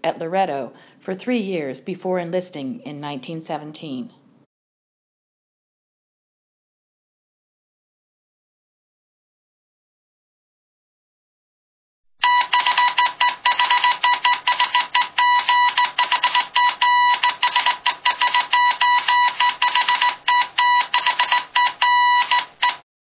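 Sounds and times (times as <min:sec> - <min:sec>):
morse code beeping: 0:12.2 - 0:22.8.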